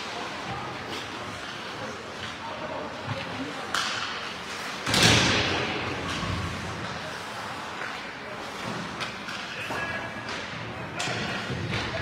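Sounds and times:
hockey sticks and puck knocking: 0:03.1 - 0:07.0, 0:07.8 - 0:12.0.

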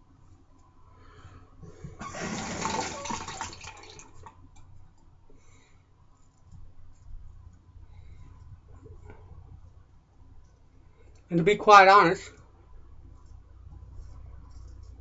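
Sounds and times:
tap water running into sink: 0:02.0 - 0:04.3.

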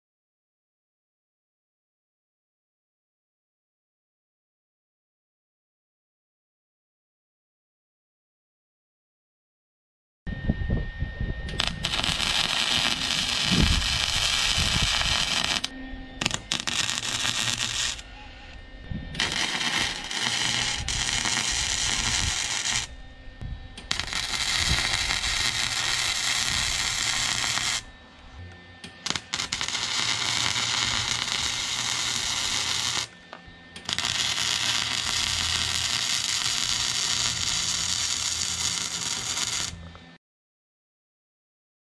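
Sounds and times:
arc welding sizzling crackle: 0:11.5 - 0:18.1, 0:19.1 - 0:22.9, 0:23.8 - 0:27.9, 0:28.8 - 0:39.8.

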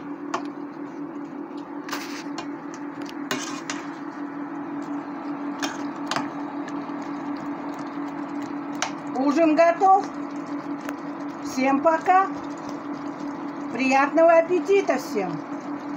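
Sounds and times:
steady low hum: 0:00.0 - 0:15.9
metal spoon stirring thick sauce: 0:03.3 - 0:03.9.

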